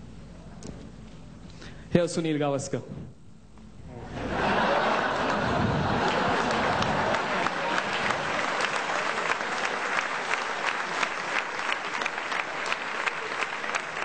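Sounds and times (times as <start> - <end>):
audience applauding: 4.4 - 14.0.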